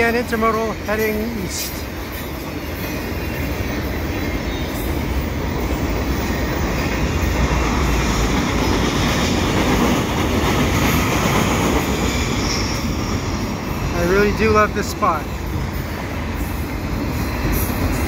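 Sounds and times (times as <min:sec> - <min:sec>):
freight train wheels rumbling on bridge: 0:00.0 - 0:18.0.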